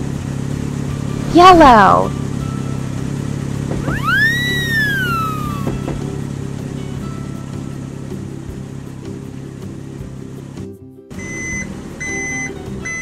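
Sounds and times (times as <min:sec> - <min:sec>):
background music: 0:00.8 - 0:13.0
cartoon slide whistle: 0:03.8 - 0:06.0
low hum: 0:03.8 - 0:07.3.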